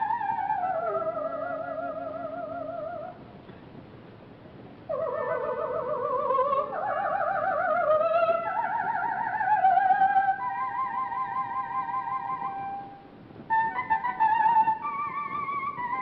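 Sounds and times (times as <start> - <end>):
soprano singing opera: 0.0 - 3.2, 4.9 - 16.0.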